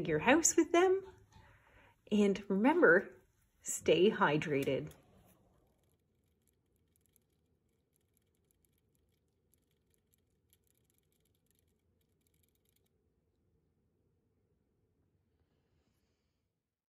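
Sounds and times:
rabbit licking metal water spout: 5.0s - 13.0s.

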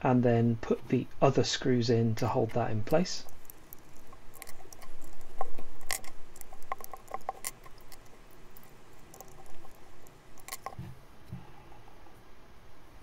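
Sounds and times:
hex driver turning screws: 3.2s - 10.8s.

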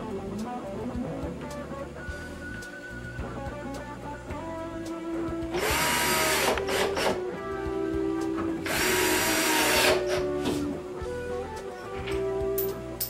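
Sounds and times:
background music: 0.0s - 13.0s
cordless drill driving screws: 5.6s - 7.2s, 8.7s - 10.2s.

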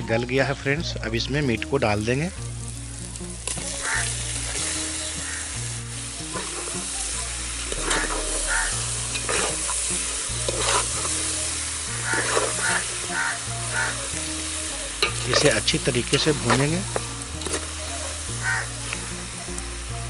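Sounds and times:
meat sizzling in hot oil: 1.8s - 20.0s
wet scraping from stirring: 6.2s - 6.8s, 7.6s - 11.3s, 11.9s - 13.9s.

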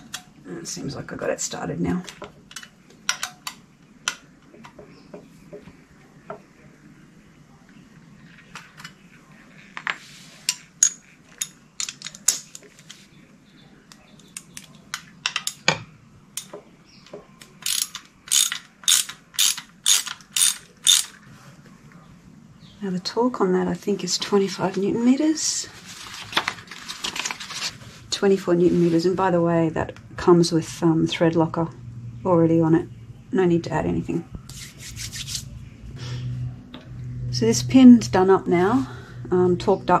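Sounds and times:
ratchet clicking: 17.6s - 21.1s.

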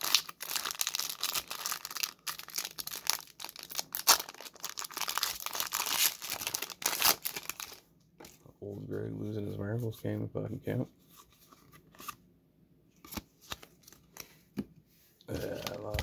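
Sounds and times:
foil wrapper crinkling and tearing: 0.0s - 7.8s.

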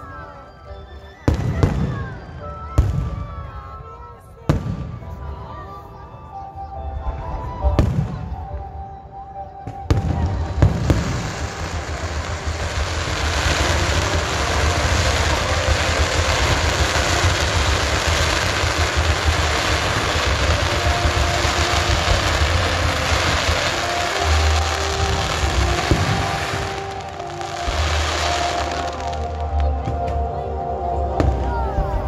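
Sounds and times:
fireworks bangs and bursts: 9.7s - 30.2s
heavy low rumble: 9.9s - 32.0s.

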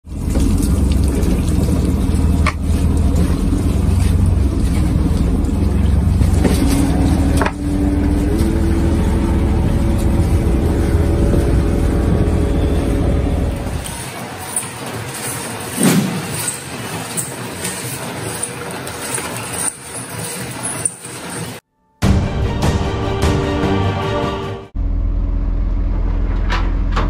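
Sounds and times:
water pouring and dripping off nets: 0.0s - 11.8s
boat engine and deck machinery: 0.0s - 21.6s, 24.8s - 27.0s
machine tone rising in pitch: 6.5s - 14.6s.

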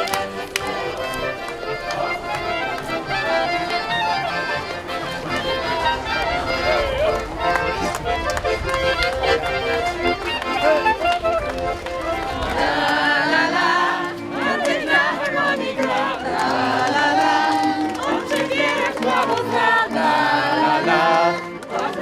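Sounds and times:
accordion: 0.0s - 22.0s
group singing: 12.2s - 22.0s.

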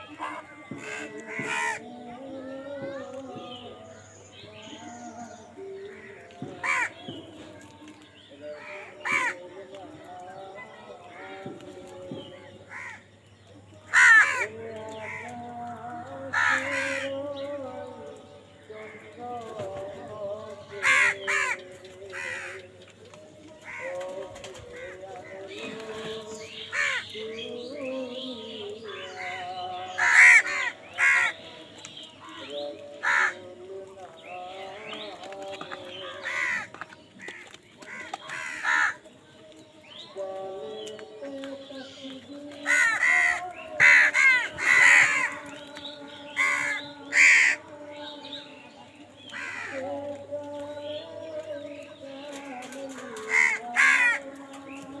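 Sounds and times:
crows cawing: 0.0s - 2.0s, 5.8s - 7.1s, 8.6s - 9.5s, 12.7s - 13.1s, 13.9s - 15.5s, 16.3s - 17.3s, 20.7s - 22.7s, 23.6s - 24.0s, 26.7s - 27.2s, 29.0s - 31.5s, 33.0s - 33.5s, 36.1s - 39.1s, 42.6s - 45.5s, 46.3s - 47.7s, 49.3s - 49.9s, 53.0s - 54.4s
din of quieter bird calls: 0.0s - 55.0s.

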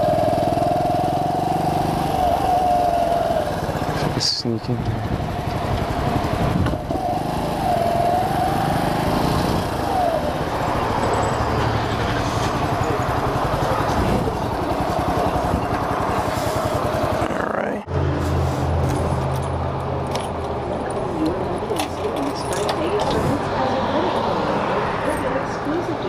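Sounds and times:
single-cylinder motorcycle engine: 0.0s - 17.8s.

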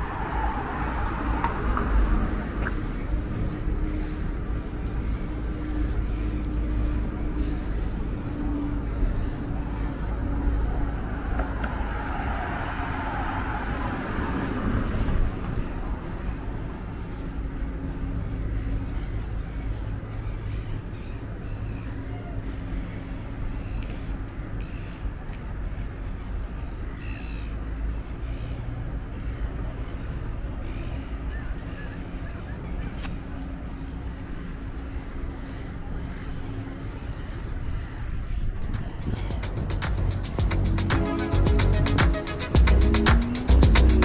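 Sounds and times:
city traffic rumble: 0.0s - 44.0s.

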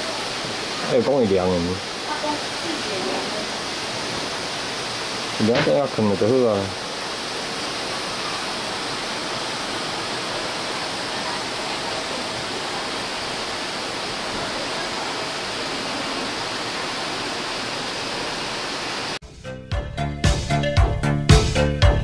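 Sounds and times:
river flowing over stones: 0.0s - 19.2s
music with a beat: 19.3s - 22.0s.

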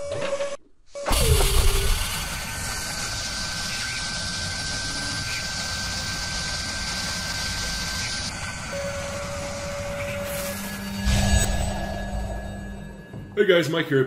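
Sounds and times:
mechanical whir: 0.0s - 13.3s
thin high whine: 1.0s - 14.0s
low hit with falling tone: 10.9s - 13.4s.

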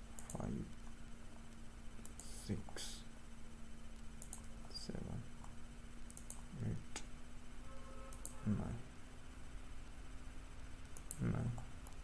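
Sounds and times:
faint steady hum: 0.0s - 12.0s
computer mouse clicking: 0.2s - 1.0s, 2.0s - 2.4s, 4.0s - 4.6s, 5.4s - 7.1s, 8.1s - 8.4s, 10.8s - 12.0s.

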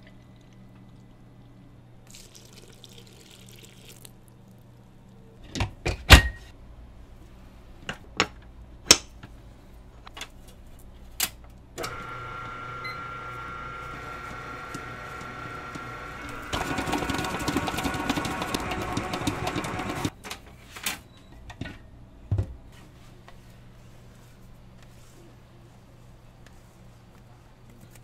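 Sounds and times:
stand mixer motor humming: 11.9s - 20.1s.

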